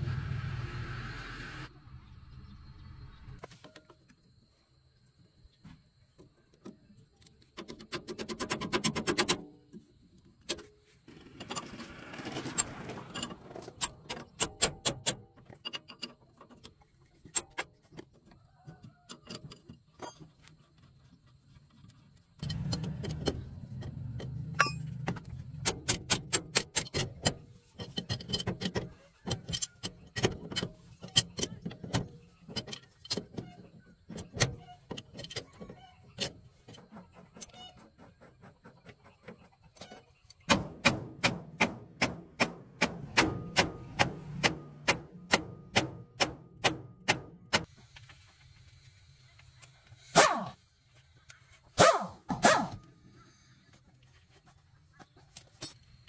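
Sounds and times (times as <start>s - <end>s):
rustling and scraping handling noise: 3.4s - 4.6s, 52.8s - 56.0s.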